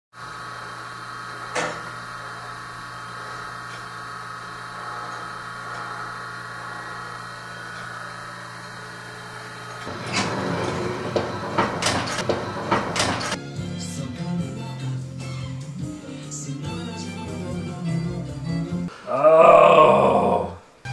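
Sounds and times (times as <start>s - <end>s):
steady hum: 0.2s - 13.4s.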